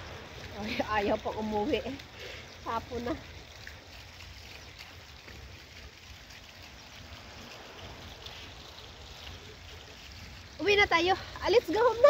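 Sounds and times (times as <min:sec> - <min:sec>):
fountain water splashing: 0:00.0 - 0:12.0.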